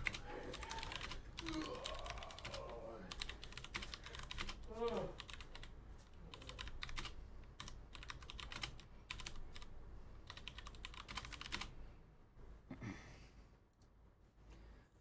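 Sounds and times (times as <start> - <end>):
typing on computer keyboard: 0.0 - 5.7, 6.3 - 11.7.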